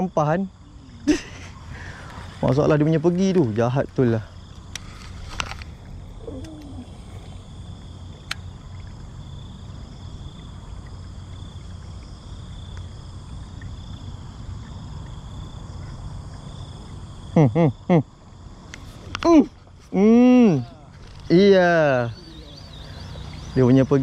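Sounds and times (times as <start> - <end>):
insects droning: 0.0 - 24.0
low rumble: 0.8 - 11.0.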